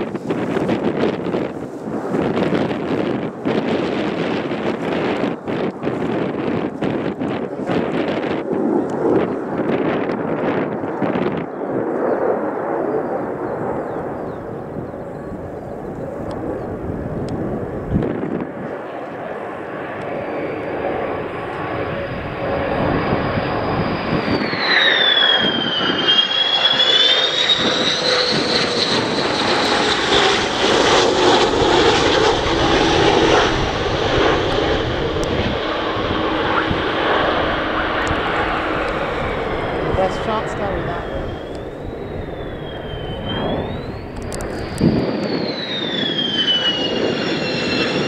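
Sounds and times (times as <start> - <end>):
jet engine whine: 0.0 - 48.0
jet noise rushing: 19.8 - 48.0.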